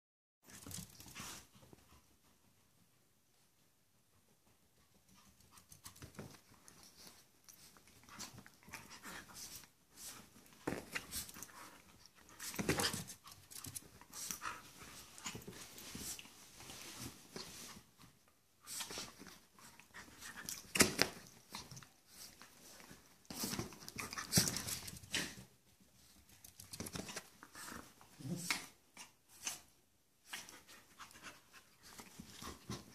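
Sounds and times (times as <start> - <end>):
rustling of bedding: 5.8 - 28.2.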